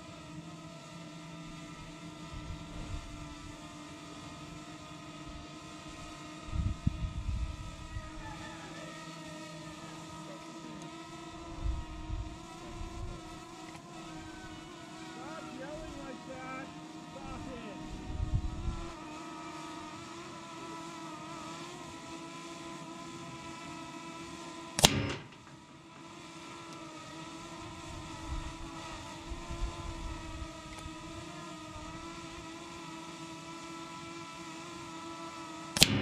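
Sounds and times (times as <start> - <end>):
drone humming: 0.0 - 36.0
air rifle shot: 24.8 - 25.6, 35.8 - 36.0.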